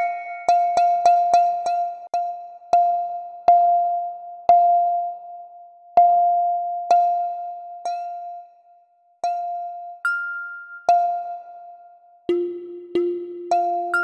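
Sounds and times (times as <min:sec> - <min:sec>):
synthesized pluck notes: 0:00.0 - 0:05.2, 0:10.8 - 0:14.0.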